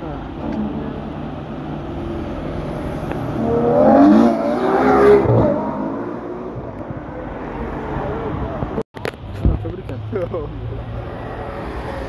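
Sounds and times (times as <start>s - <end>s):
car engine accelerating hard: 0.4s - 8.7s.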